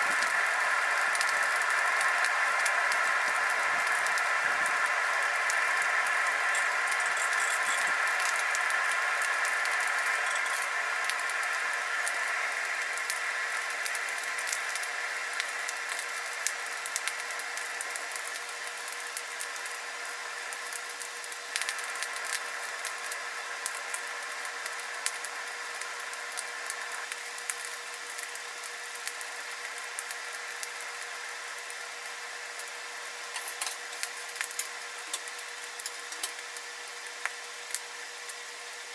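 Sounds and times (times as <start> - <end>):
forge air blower whirring: 0.0 - 28.6
burning coal crackling and popping: 0.0 - 38.9.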